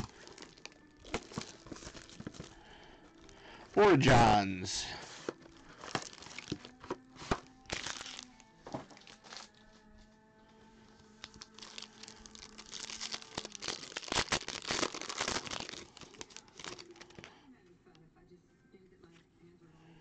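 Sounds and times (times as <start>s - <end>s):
wrapper tearing open: 0.0s - 2.6s, 5.6s - 8.4s, 9.0s - 9.6s, 11.1s - 17.3s
foil wrapper crinkling: 0.0s - 3.4s, 5.4s - 9.6s, 11.0s - 17.3s
faint background music: 0.0s - 20.0s.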